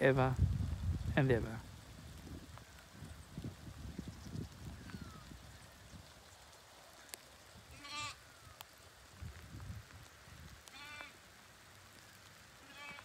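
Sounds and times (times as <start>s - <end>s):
sheep bleating: 7.7s - 8.2s, 10.7s - 11.2s, 12.6s - 13.0s.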